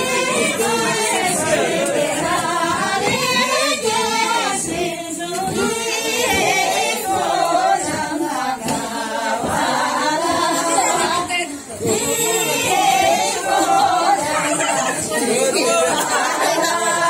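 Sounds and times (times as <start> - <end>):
women singing unaccompanied: 0.0 - 17.0.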